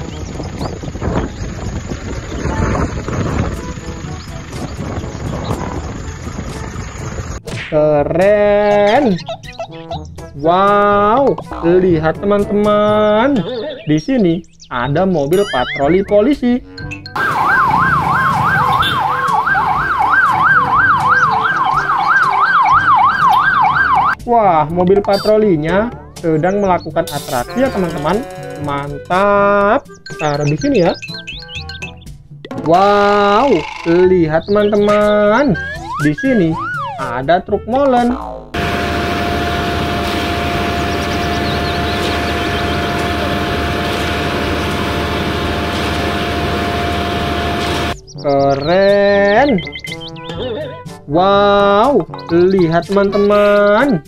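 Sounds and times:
birds chirping faintly: 0:08.5 - 0:11.9, 0:38.6 - 0:43.7
engine and traffic rumble: 0:17.2 - 0:24.2, 0:38.6 - 0:48.0
police siren yelping: 0:17.2 - 0:24.2, 0:35.6 - 0:37.1, 0:38.6 - 0:48.0
concrete mixer truck running: 0:38.6 - 0:48.0.

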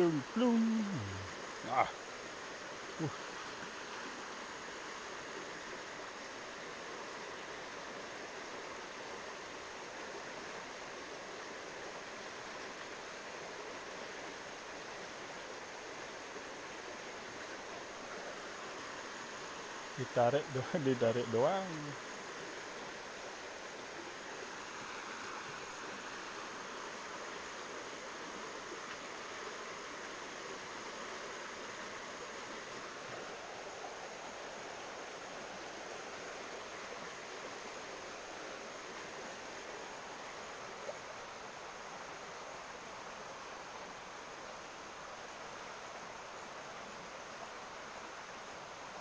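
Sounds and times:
stream rushing over rocks: 0:00.0 - 0:49.0.

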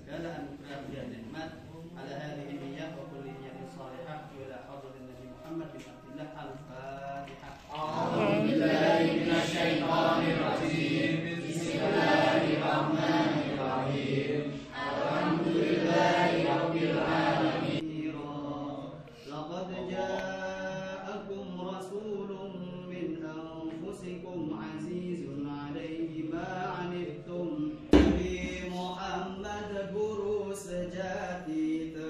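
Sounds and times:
group chanting in unison: 0:07.7 - 0:23.2.

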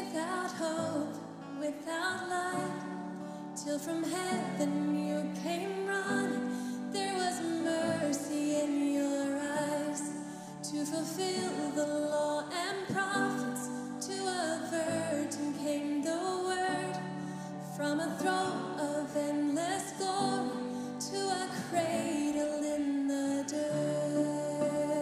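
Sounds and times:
woman singing worship song: 0:00.0 - 0:25.0.

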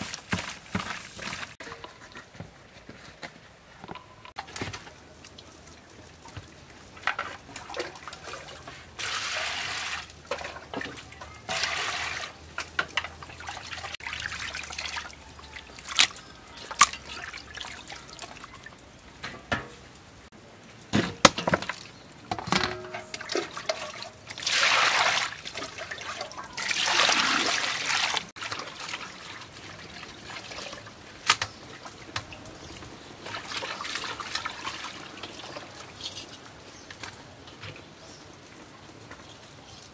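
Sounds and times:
water sloshing in metal bowl: 0:04.4 - 0:19.7, 0:21.4 - 0:37.8.

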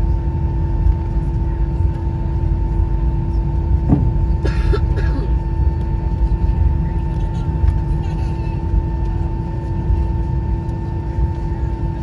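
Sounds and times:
airplane cabin rumble: 0:00.0 - 0:12.0.

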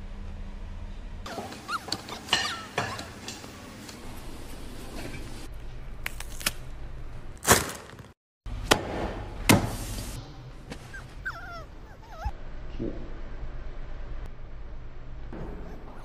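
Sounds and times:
puppy squeaking and whimpering: 0:01.3 - 0:03.2, 0:10.9 - 0:12.4.

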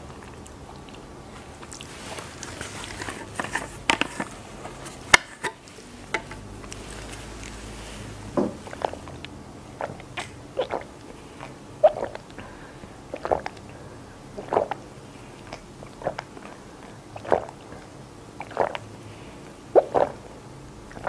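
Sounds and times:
person gulping a drink: 0:08.4 - 0:13.8, 0:14.4 - 0:18.9, 0:19.7 - 0:21.0.

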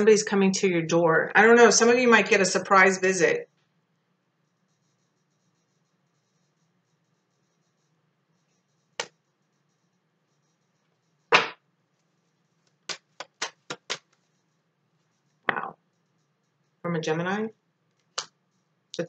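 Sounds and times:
card slap: 0:11.3 - 0:11.6
cards being shuffled: 0:11.3 - 0:11.6, 0:12.6 - 0:14.2
sharp card snaps: 0:11.3 - 0:11.6, 0:12.9 - 0:14.0.

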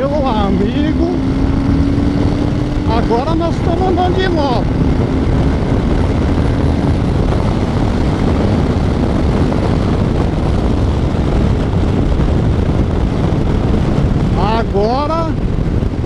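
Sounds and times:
motorcycle engine running: 0:00.0 - 0:16.0
wind rush on microphone: 0:00.0 - 0:16.0.

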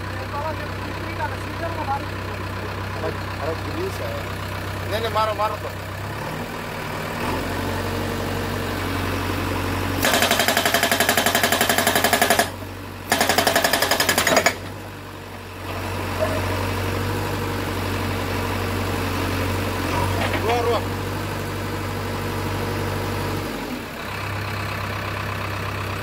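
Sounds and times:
backhoe engine running: 0:00.0 - 0:26.0
hydraulic rock breaker hammering: 0:10.0 - 0:14.8.

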